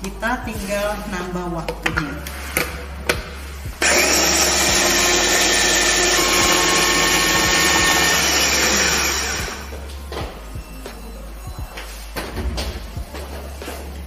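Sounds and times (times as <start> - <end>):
electric food chopper running: 3.8 - 9.7.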